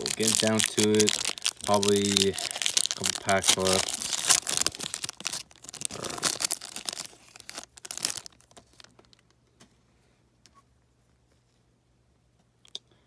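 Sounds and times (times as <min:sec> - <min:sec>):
foil wrapper tearing and crinkling: 0:00.0 - 0:09.3.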